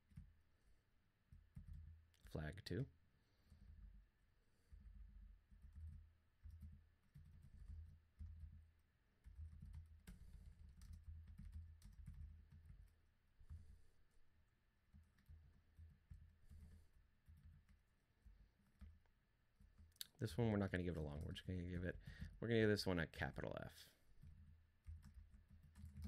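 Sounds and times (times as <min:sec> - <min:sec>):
typing on computer keyboard: 0:01.3 - 0:02.3, 0:04.6 - 0:13.8, 0:14.9 - 0:19.0, 0:24.0 - 0:26.0.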